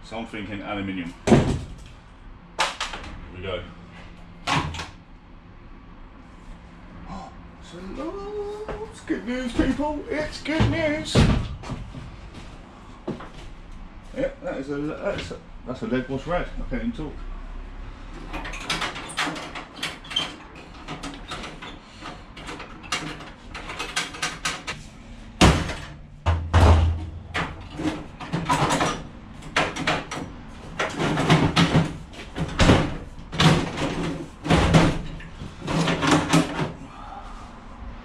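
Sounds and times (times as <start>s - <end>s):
heavy metal bangs: 25.4s - 30.1s
metal clanks and scrapes: 26.8s - 36.8s.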